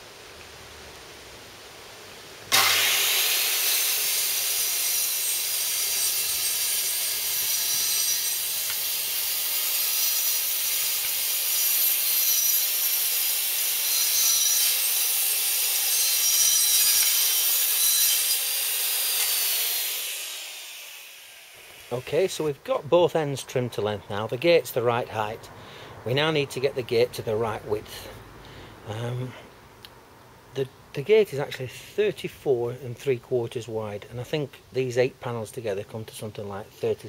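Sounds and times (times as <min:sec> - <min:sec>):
circular saw cutting wood: 0:02.5 - 0:22.6.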